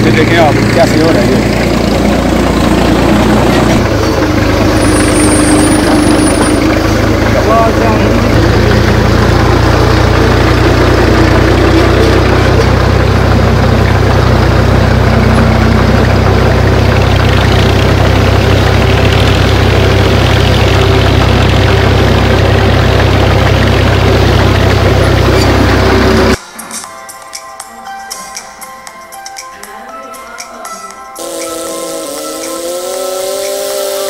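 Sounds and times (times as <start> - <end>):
tractor diesel engine running: 0.0 - 26.4, 31.2 - 34.0.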